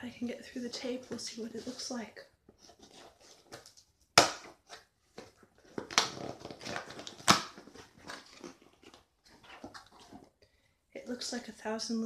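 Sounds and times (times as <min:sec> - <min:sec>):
packaging crackling: 0:05.6 - 0:10.2
packing tape ripping: 0:05.8 - 0:09.0.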